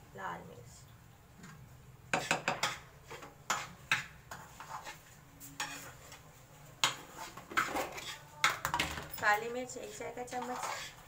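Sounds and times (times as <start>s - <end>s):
utensils knocking against wok: 2.1s - 2.8s.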